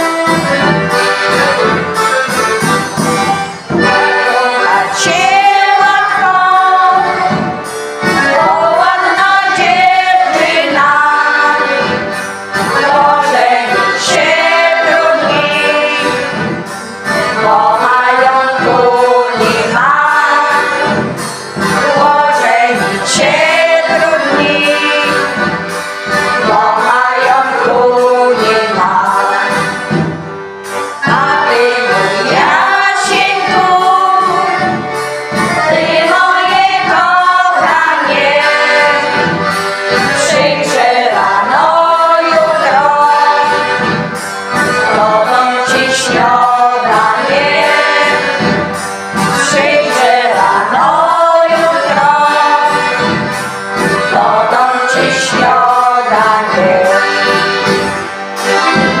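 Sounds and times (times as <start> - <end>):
group singing: 0.0 - 30.2, 30.8 - 59.0
accordion: 0.0 - 59.0
drum beat: 0.5 - 11.8.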